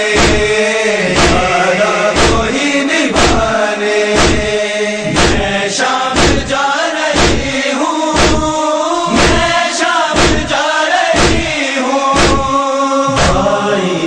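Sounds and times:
group chanting lament: 0.0 - 14.0
hand slaps on chest: 0.2 - 0.5, 2.2 - 2.4, 3.2 - 3.4, 4.2 - 4.5, 5.2 - 5.4, 6.2 - 6.5, 7.2 - 7.5, 8.2 - 8.5, 10.2 - 10.5, 11.2 - 11.6, 12.2 - 12.5.

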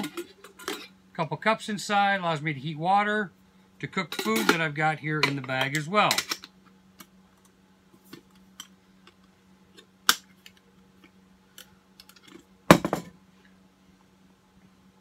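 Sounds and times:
metal cups clicking and scraping: 0.0 - 0.9, 4.1 - 6.5.

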